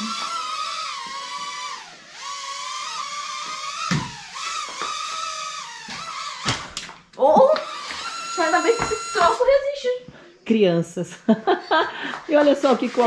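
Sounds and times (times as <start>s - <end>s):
toy drone propellers whining: 0.0s - 9.6s.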